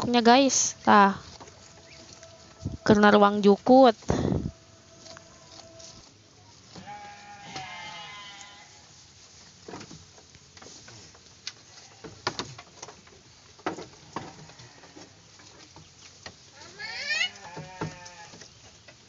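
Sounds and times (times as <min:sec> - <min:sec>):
goat bleating: 0:06.7 - 0:08.8, 0:14.3 - 0:15.0, 0:16.6 - 0:18.4.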